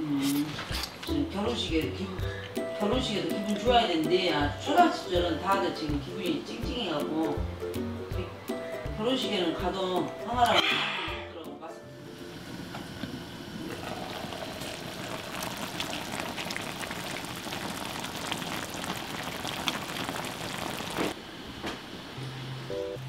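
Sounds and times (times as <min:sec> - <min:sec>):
stew bubbling and crackling: 0:13.6 - 0:21.2.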